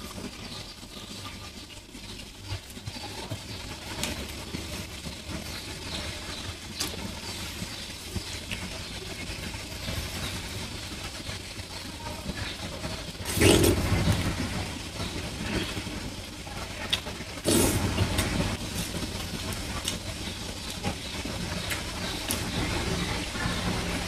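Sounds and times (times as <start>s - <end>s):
chewing: 13.3s - 14.3s, 16.8s - 20.1s.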